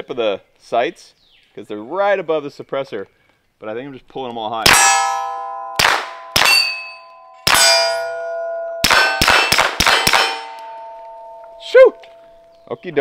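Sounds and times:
bullets ringing on steel targets: 0:04.6 - 0:12.5
suppressed pistol shots: 0:05.8 - 0:06.8, 0:08.8 - 0:10.8.

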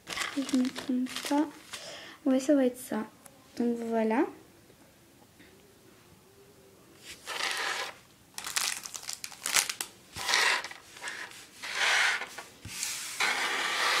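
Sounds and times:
plastic bags crinkling: 0:00.0 - 0:01.9, 0:07.2 - 0:11.4.

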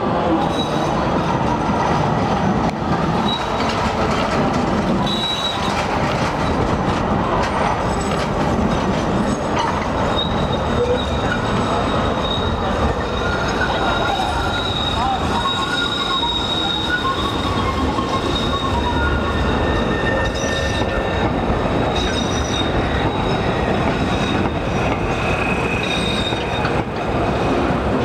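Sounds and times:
tram wheels rumbling on track: 0:00.0 - 0:28.0
clacks over rail joints: 0:02.6 - 0:11.7
high wheel squeal: 0:03.2 - 0:03.8, 0:05.0 - 0:05.9, 0:10.0 - 0:26.8.

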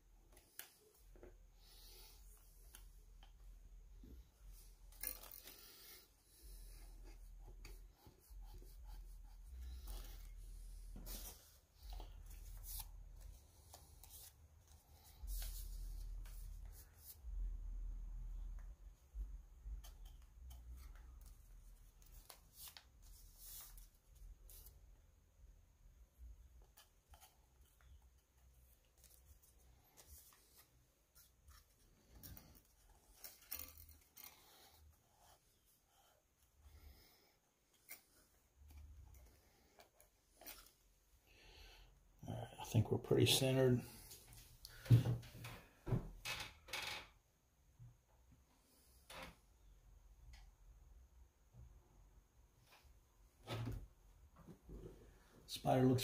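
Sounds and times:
handling rustling and scraping: 0:00.2 - 0:17.2, 0:26.6 - 0:36.6, 0:37.6 - 0:41.2
rustling scrapes: 0:04.5 - 0:17.2.

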